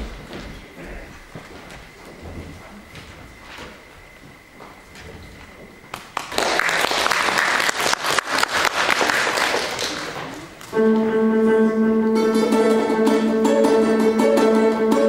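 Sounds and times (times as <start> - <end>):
audience applauding: 5.9 - 10.7
balalaika playing a tune: 10.8 - 15.0.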